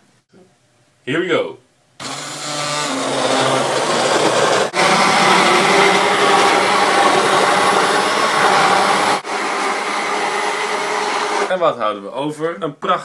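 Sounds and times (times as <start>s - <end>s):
stick blender running: 2.0s - 11.8s.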